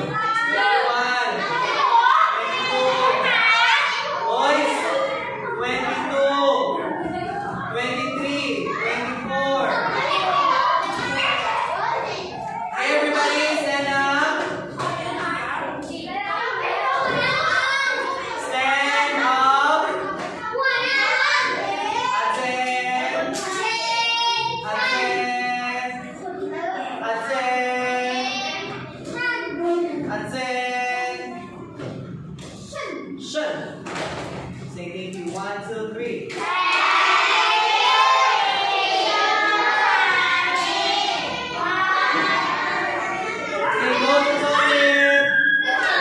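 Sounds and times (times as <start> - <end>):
children singing: 36.4 - 46.0.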